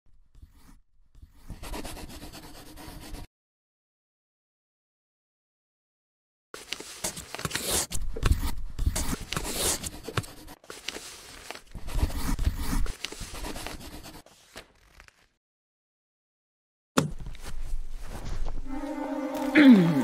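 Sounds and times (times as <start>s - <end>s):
paper rasping and tearing: 6.6s - 15.4s.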